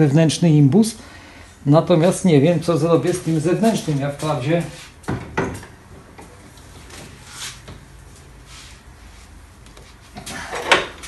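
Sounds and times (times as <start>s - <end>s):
soft rustles: 6.5s - 10.2s.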